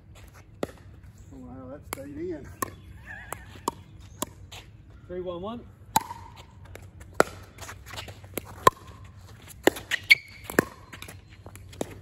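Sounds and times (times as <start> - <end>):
ball bouncing on hard court: 1.8 - 4.6, 5.9 - 12.0.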